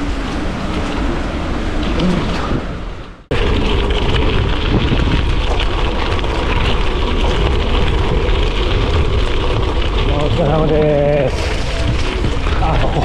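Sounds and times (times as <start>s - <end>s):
wind rumbling on microphone: 0.0s - 13.0s
bike tyres crunching on gravel: 3.3s - 13.0s.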